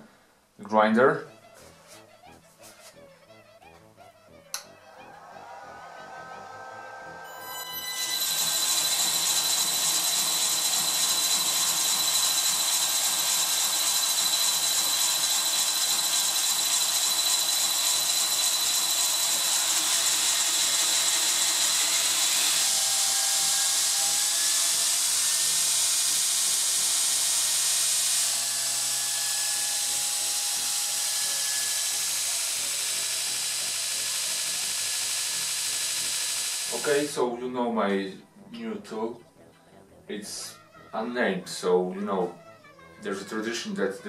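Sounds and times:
belt grinder motor whining: 4.6 - 37.2.

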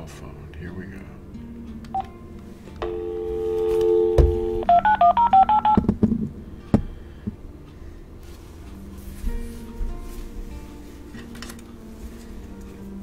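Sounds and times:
telephone dial tone: 2.8 - 5.8
touch-tone keypad beeps: 3.9 - 5.9.

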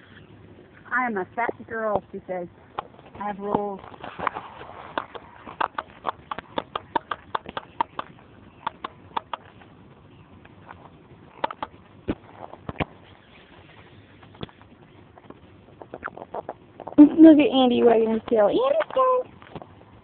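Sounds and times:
puppies chewing clicks: 4.9 - 9.7, 10.4 - 11.9.

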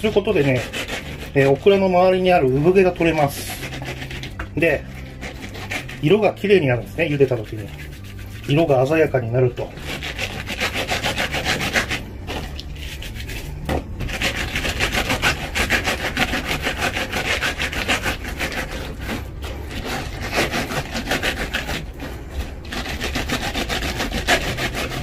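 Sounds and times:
scratchy rubbing of pods with salt: 0.0 - 25.0.

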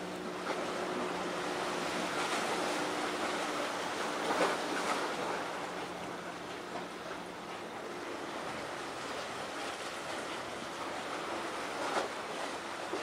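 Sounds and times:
sea waves rushing on shore: 0.0 - 13.0.

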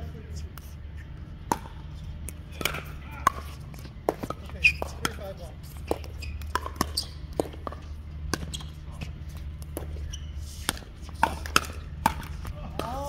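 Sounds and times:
steady low hum: 0.0 - 13.0
paddles hitting plastic ball: 10.6 - 13.0.

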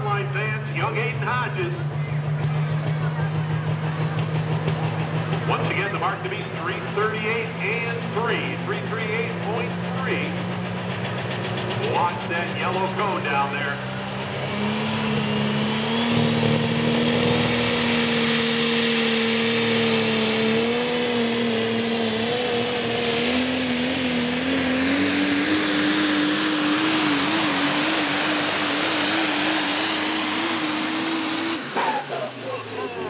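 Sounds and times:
diesel engine under load: 0.0 - 33.0
turbocharger whistle: 14.4 - 33.0.

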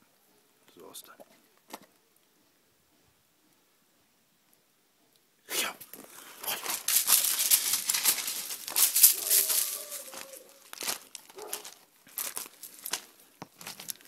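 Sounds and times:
dry leaves rustling and crackling: 5.9 - 14.0.

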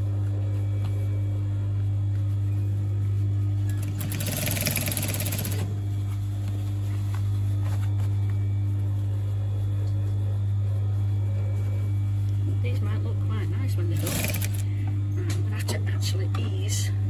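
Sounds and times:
steady low hum: 0.0 - 17.0
sewing machine stitching: 3.8 - 5.7, 14.0 - 14.6.

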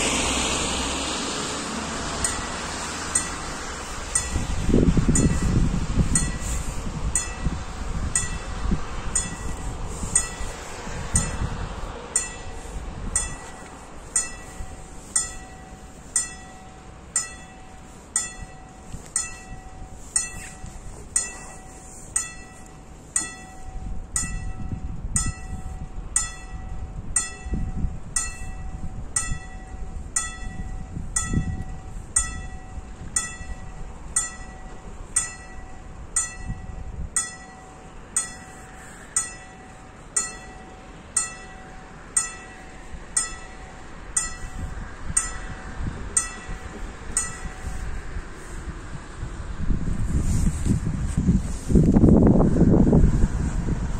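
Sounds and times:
low rumble: 0.0 - 37.8
level crossing warning bell: 1.9 - 48.9.

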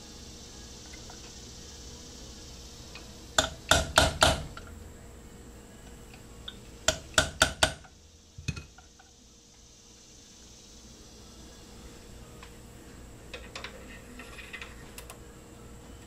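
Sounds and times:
hammer tapping metal punch: 3.4 - 4.6, 6.5 - 8.8.

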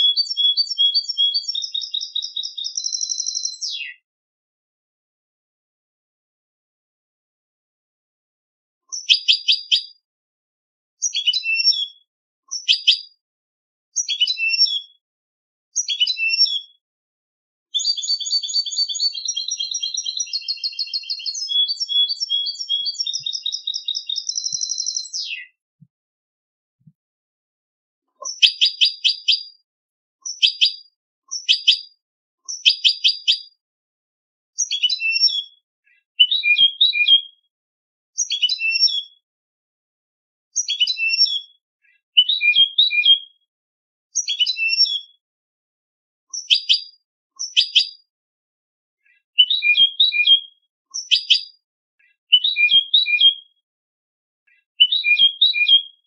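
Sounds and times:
goldfinch singing trills: 0.0 - 3.9, 11.0 - 13.1, 14.0 - 14.9, 15.8 - 16.7, 17.8 - 25.6, 34.6 - 35.5, 38.2 - 39.1, 40.6 - 41.5, 44.2 - 45.1.

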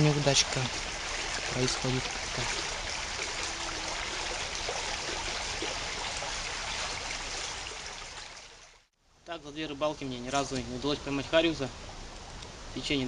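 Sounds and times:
river water rushing: 0.0 - 8.8.

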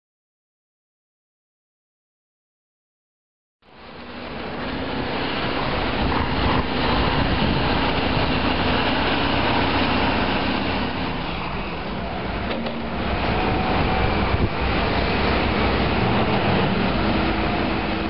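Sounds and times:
heavy machinery engines running: 3.7 - 18.0.

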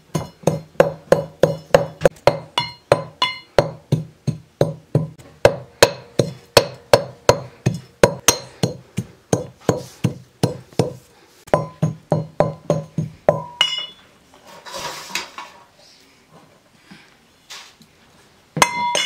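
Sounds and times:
pestle pounding in metal pot: 0.0 - 14.0.

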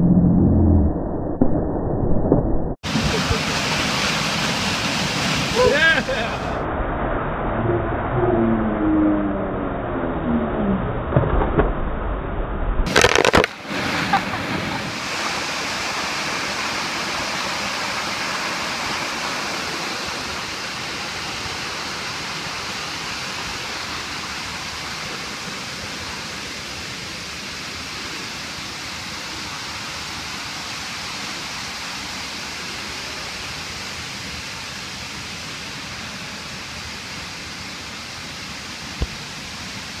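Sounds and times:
rush of falling water: 2.8 - 6.7, 12.9 - 40.0.

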